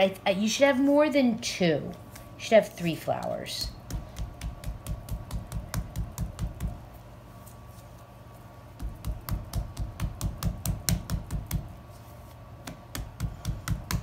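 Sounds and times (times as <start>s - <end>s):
hand patting dough on stone: 3.7s - 6.9s, 8.7s - 14.0s.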